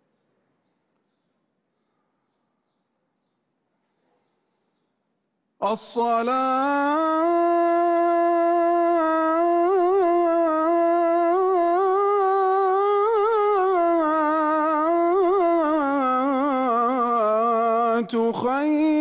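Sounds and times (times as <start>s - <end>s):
man chanting call to prayer: 5.6s - 19.0s.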